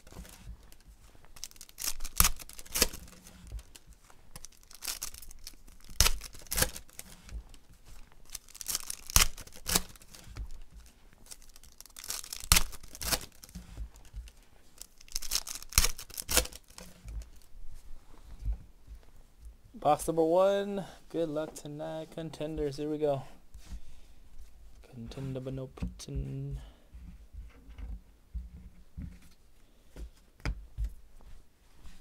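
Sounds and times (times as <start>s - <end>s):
foil wrappers tearing and crinkling: 1.4s - 7.6s, 8.2s - 17.5s.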